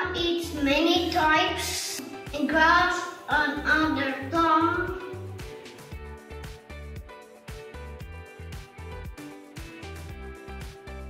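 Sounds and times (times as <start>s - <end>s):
music with beat and deep bass: 1.9s - 11.0s.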